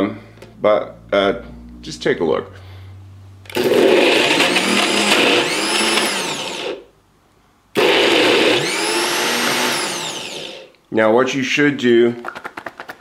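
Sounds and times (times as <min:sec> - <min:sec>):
blender motor running: 0:03.5 - 0:06.9, 0:07.8 - 0:10.7.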